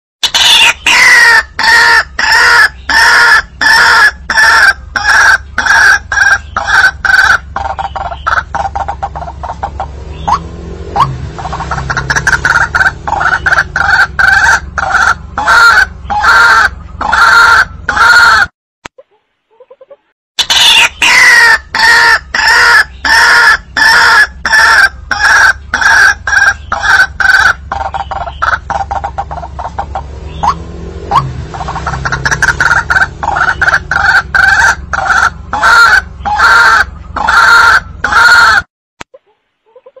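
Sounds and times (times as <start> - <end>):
bird repeating harsh notes: 0.2 - 18.4, 20.4 - 38.6
low hum: 7.0 - 17.9, 24.9 - 37.2.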